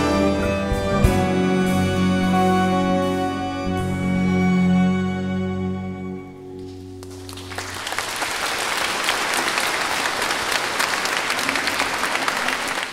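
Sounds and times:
orchestra with guitars chord ringing: 0:00.0 - 0:08.0
audience applause: 0:07.0 - 0:12.9.

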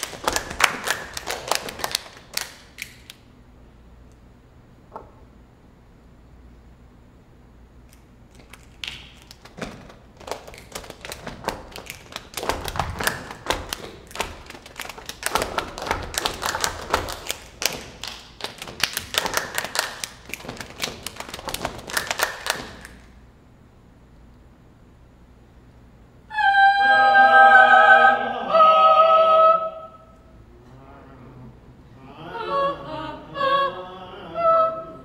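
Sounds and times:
sharp percussive taps and clicks: 0:08.4 - 0:23.0.

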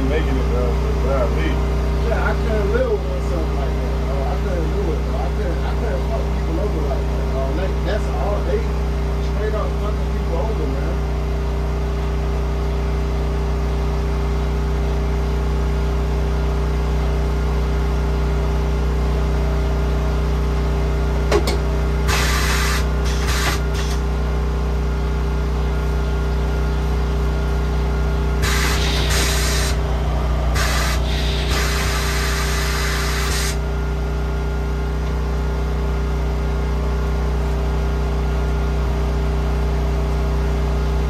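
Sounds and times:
low machine hum: 0:00.0 - 0:41.0
compressed air hissing: 0:22.1 - 0:24.0, 0:28.4 - 0:29.8, 0:30.5 - 0:33.6.

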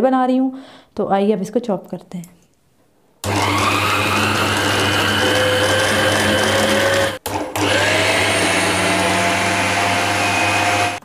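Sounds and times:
electric food chopper motor running: 0:03.2 - 0:11.0.

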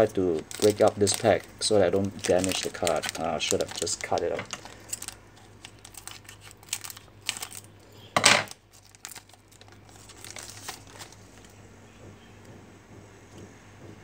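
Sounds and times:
scissors cutting foil wrapper: 0:00.0 - 0:07.7, 0:08.7 - 0:11.2
foil wrapper crinkling: 0:00.0 - 0:11.5.

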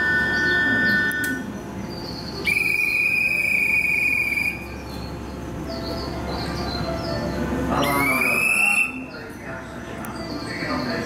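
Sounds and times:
platform departure chime: 0:00.0 - 0:02.5, 0:04.6 - 0:11.0
long whistle blast: 0:02.4 - 0:04.7, 0:07.8 - 0:09.1.

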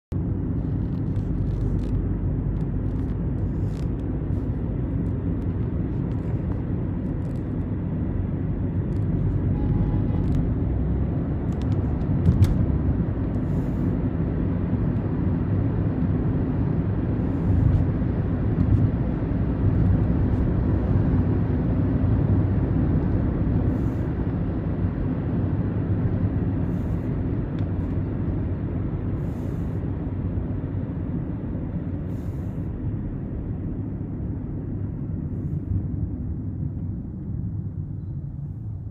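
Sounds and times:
car engine and tyre noise: 0:00.0 - 0:38.9.

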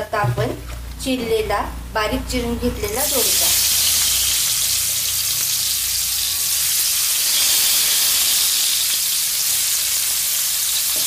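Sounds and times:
oil and spices sizzling: 0:02.7 - 0:11.0.

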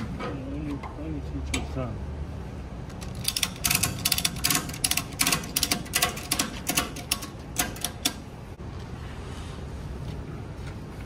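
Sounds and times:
ratchet strap clicking: 0:03.0 - 0:08.2.

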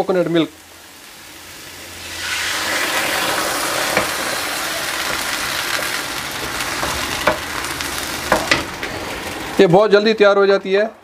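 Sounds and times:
liquid sizzling in wok: 0:00.0 - 0:09.7
spatula knock: 0:06.8 - 0:07.5, 0:08.3 - 0:08.7.

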